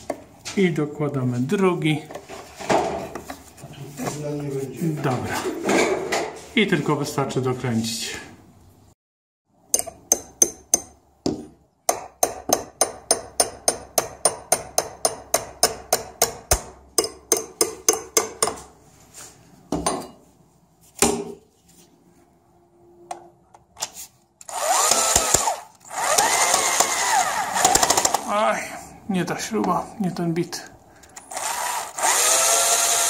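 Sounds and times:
drill-driver clicking: 0:24.4 - 0:27.0
drill motor running: 0:24.4 - 0:28.2, 0:31.3 - 0:33.0.

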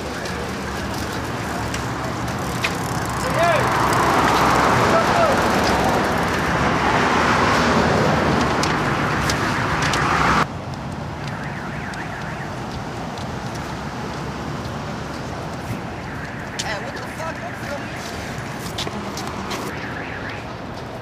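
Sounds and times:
street traffic noise: 0:00.0 - 0:21.0.

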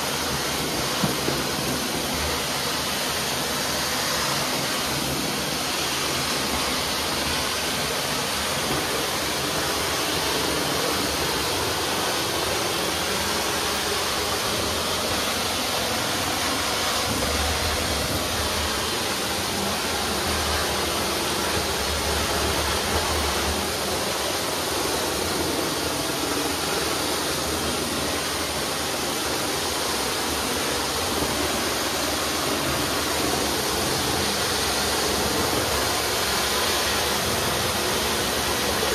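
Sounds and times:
vacuum suction: 0:00.0 - 0:38.9.

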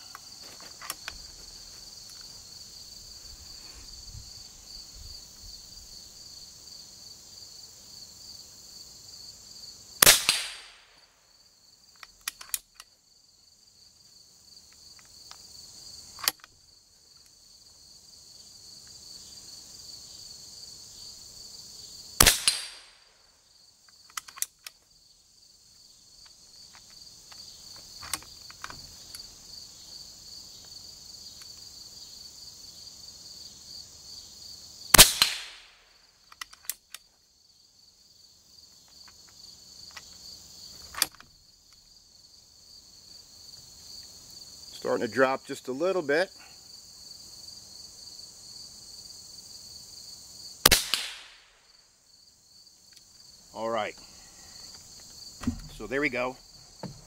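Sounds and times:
crickets chirring: 0:00.0 - 0:57.0
air rifle shots: 0:10.0 - 0:10.9, 0:22.2 - 0:23.0, 0:35.0 - 0:35.8, 0:50.6 - 0:51.5.

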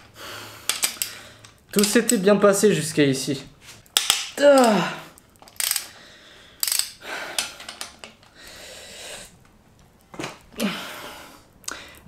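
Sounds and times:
ratchet wrench clicking: 0:05.5 - 0:05.9, 0:06.6 - 0:07.0.

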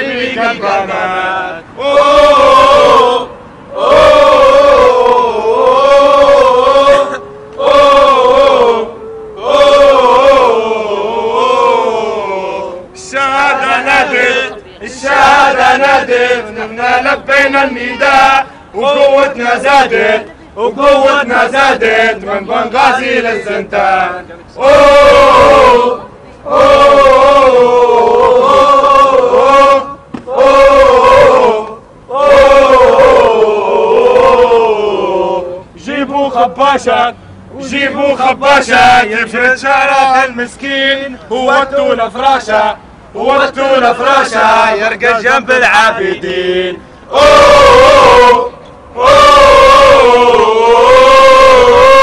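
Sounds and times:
person singing drawn-out phrases: 0:16.1 - 0:19.2.

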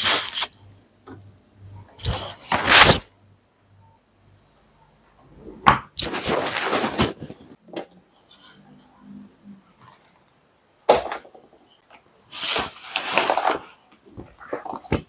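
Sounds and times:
sheet rustling when shaken: 0:06.0 - 0:07.6.

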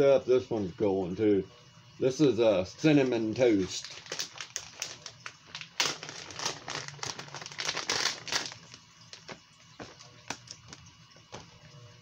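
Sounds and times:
plastic packaging crinkling: 0:03.0 - 0:11.5.

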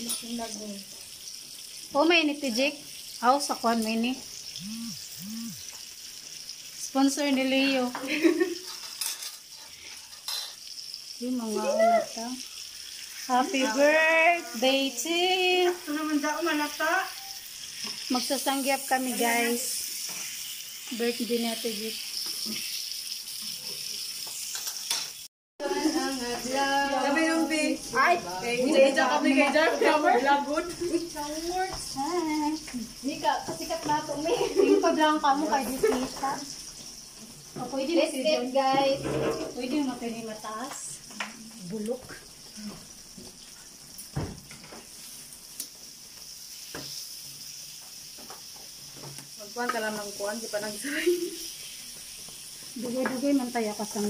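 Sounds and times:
meat sizzling on grill pan: 0:00.0 - 0:54.0.

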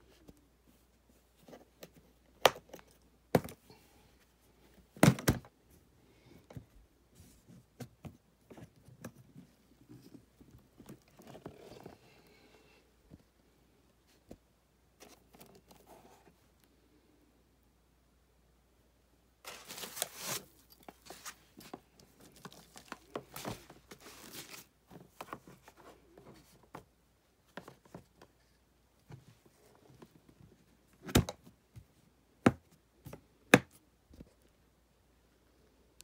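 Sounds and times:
rustling and scraping of foam: 0:19.4 - 0:26.6.

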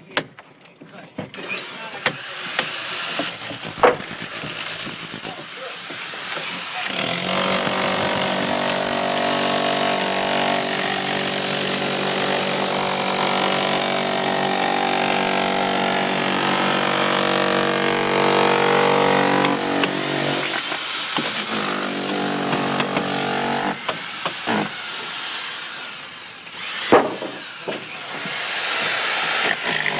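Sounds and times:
rotary hammer chiselling brickwork: 0:02.0 - 0:25.1, 0:26.6 - 0:29.9.

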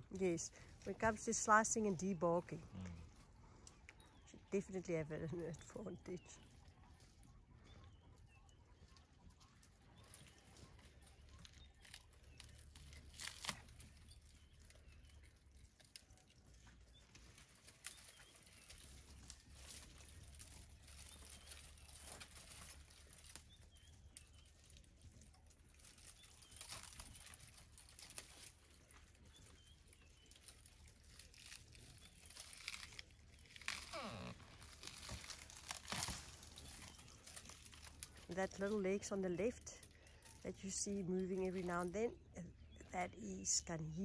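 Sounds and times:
bark and branches crackling: 0:00.0 - 0:44.0
sharp branch cracks: 0:11.3 - 0:16.1, 0:25.7 - 0:29.1, 0:30.2 - 0:38.3.

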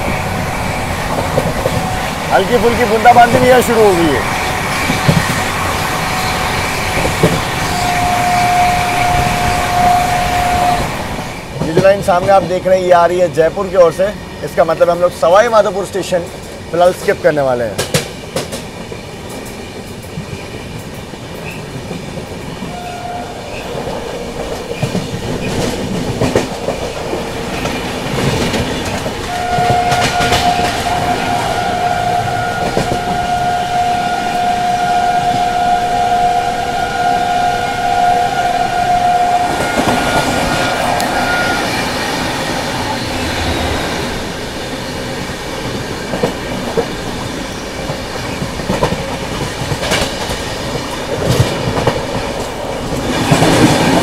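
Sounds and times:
train wheels clattering: 0:00.0 - 0:13.1, 0:15.4 - 0:22.8, 0:23.4 - 0:33.4, 0:39.4 - 0:54.0
train horn: 0:04.9 - 0:11.1, 0:22.7 - 0:23.6, 0:29.2 - 0:42.2.

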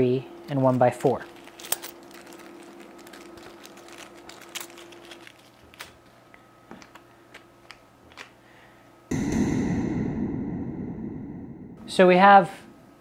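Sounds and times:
plastic bag crinkling: 0:00.4 - 0:08.3
sudden loud noise: 0:09.1 - 0:12.8.

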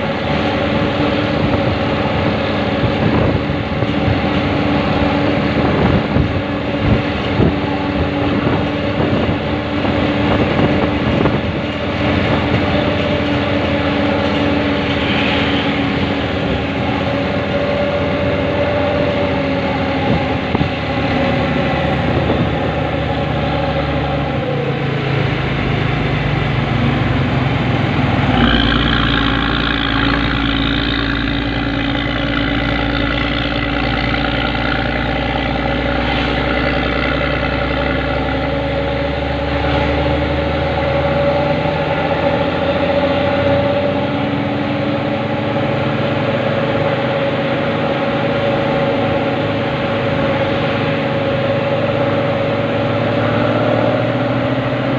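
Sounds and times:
wind buffeting on microphone: 0:00.0 - 0:35.4
bus diesel engine: 0:00.0 - 0:54.9.

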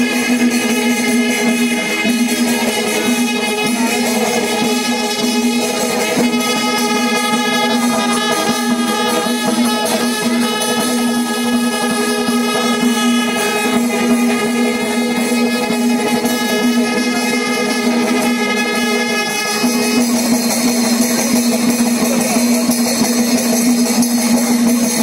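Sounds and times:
percussion: 0:00.0 - 0:25.0.

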